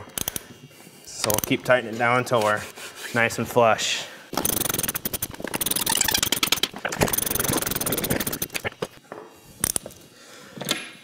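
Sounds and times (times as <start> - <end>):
ratchet wrench clicking: 0.0 - 0.4, 4.4 - 8.8, 9.6 - 9.9.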